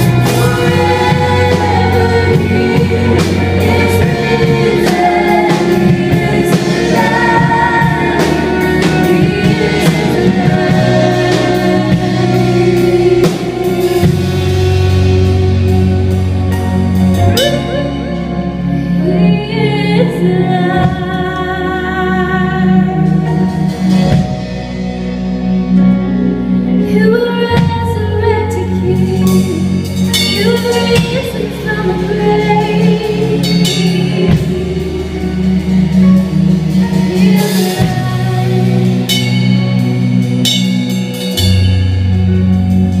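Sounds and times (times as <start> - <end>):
woman singing: 0.0 - 14.9, 18.9 - 23.7, 26.8 - 36.1, 36.7 - 39.8
drum kit: 0.0 - 43.0
electric guitar: 0.0 - 43.0
low bass notes: 0.0 - 43.0.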